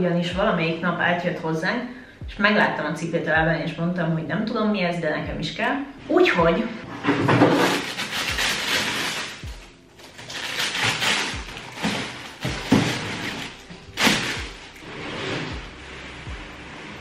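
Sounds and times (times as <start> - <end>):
wrapping paper rustling: 7.0 - 17.0.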